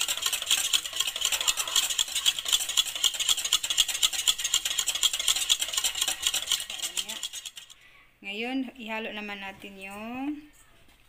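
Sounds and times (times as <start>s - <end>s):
whisk clicking in metal bowl: 0.0s - 7.8s.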